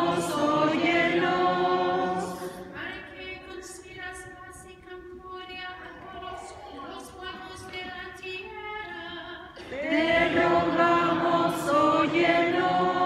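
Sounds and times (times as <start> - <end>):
group singing unaccompanied: 0.0 - 2.8, 9.6 - 13.0.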